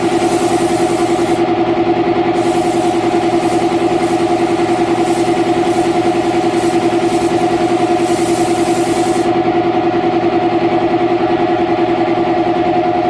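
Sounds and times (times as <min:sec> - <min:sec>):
paint spray gun hissing: 0:00.0 - 0:01.4, 0:02.3 - 0:09.3
air compressor pulsing hum: 0:00.0 - 0:13.0.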